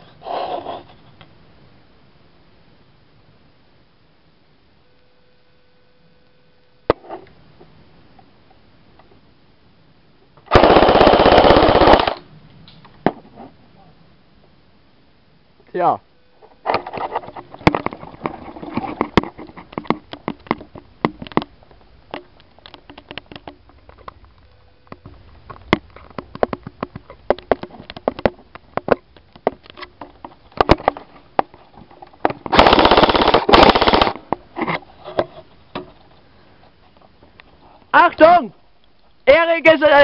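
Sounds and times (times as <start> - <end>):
airsoft rifle firing full-auto: 10.5 - 12.3, 32.5 - 34.2
sharp clicks and knocks: 16.7 - 32.6.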